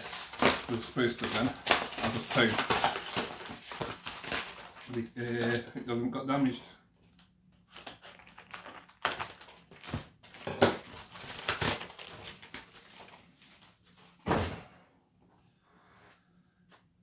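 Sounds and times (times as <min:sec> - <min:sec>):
cardboard rustling and scraping: 0:00.0 - 0:05.6
thump: 0:14.2 - 0:14.7.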